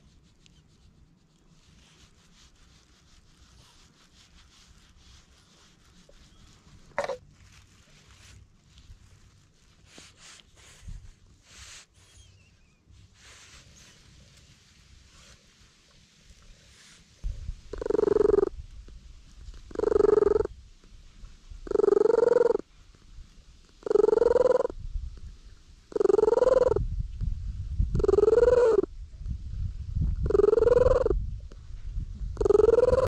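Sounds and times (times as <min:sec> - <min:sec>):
cat purring loudly: 0:17.7 - 0:18.5, 0:19.5 - 0:20.5, 0:21.6 - 0:22.6, 0:23.7 - 0:24.8, 0:25.9 - 0:26.8, 0:27.9 - 0:28.9, 0:30.2 - 0:31.2, 0:32.3 - 0:33.0.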